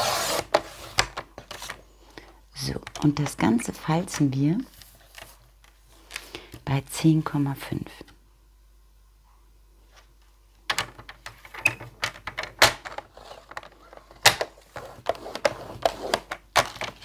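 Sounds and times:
scoring tool scraping and clicking: 14.8 - 17.0.

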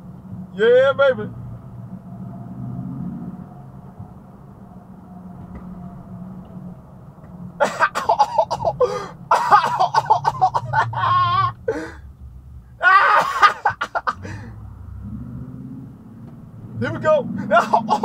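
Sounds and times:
low vehicle engine drone: 0.0 - 18.0
man's loud wordless vocal outbursts: 0.6 - 1.3, 16.8 - 18.0.

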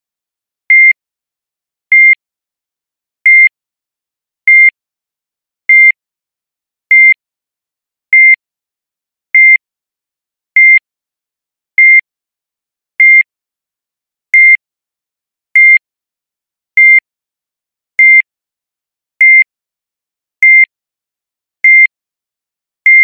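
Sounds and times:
heart monitor beeping: 0.7 - 1.0, 1.9 - 2.2, 3.3 - 3.5, 4.5 - 4.7, 13.0 - 13.2, 14.4 - 14.6.

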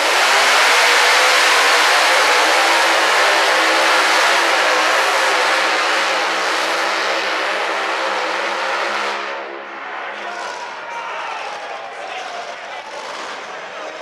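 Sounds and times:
tractor engine running flat out: 0.0 - 9.3.

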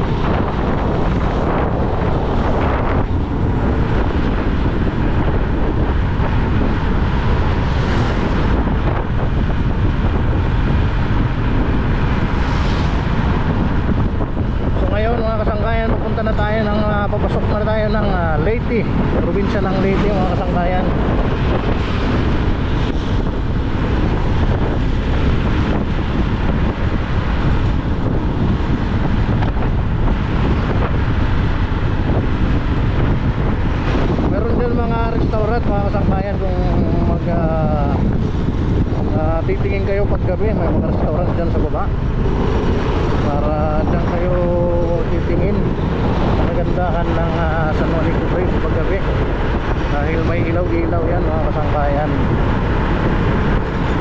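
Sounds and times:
wind buffeting microphone: 0.0 - 54.0
motorcycle engine: 41.4 - 54.0.

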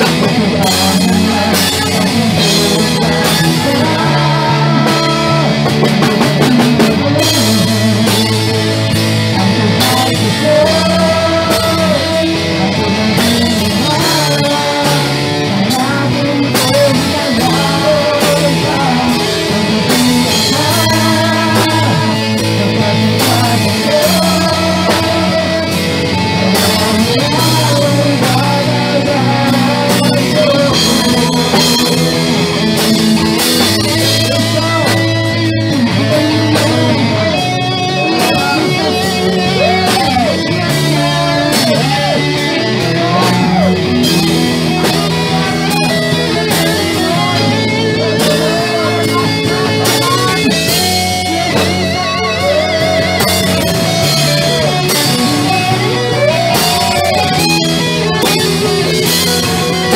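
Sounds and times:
woman singing into microphone: 0.0 - 34.9
electric bass: 0.0 - 59.9
electric guitar: 0.0 - 59.9.

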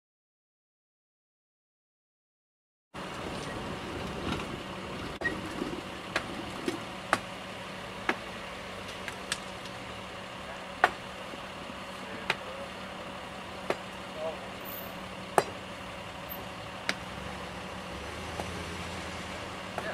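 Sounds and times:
engine idling hum: 3.0 - 19.9.

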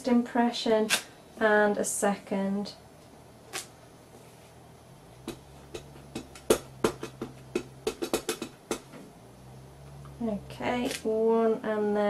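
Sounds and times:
faint low hum: 0.0 - 12.0
stamp tapping on ink pad: 5.2 - 8.9.

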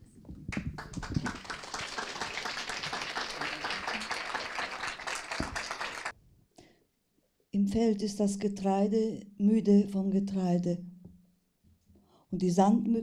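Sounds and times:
audience applauding: 0.5 - 6.1.

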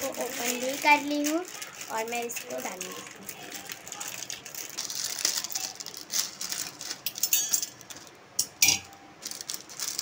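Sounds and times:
plastic wrapper crinkling: 0.0 - 10.0
metallic clink from pot: 7.1 - 7.8, 8.4 - 9.0.

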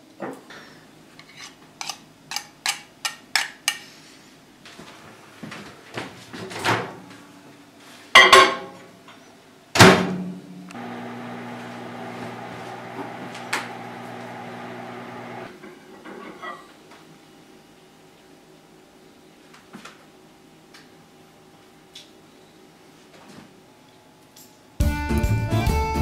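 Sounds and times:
microwave humming: 10.7 - 15.5.

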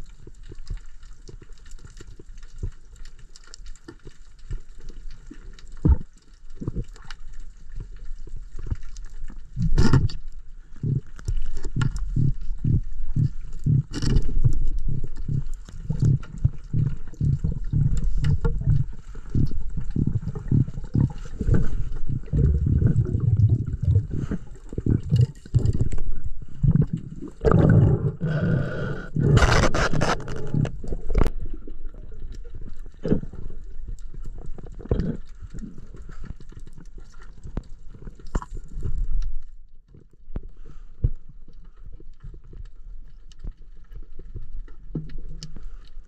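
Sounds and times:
underwater rushing: 5.1 - 39.2
underwater thumps and knocks: 10.9 - 28.0.

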